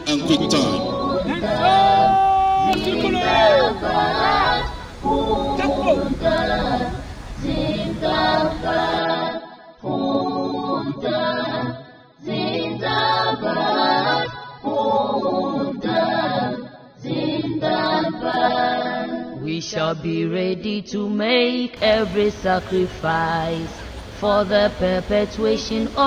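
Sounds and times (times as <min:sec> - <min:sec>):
crowd chanting in unison: 0:00.0 - 0:19.4.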